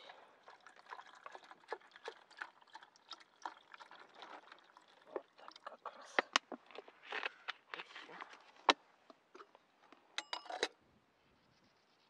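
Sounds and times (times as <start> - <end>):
metallic lid clink: 10.2 - 10.8.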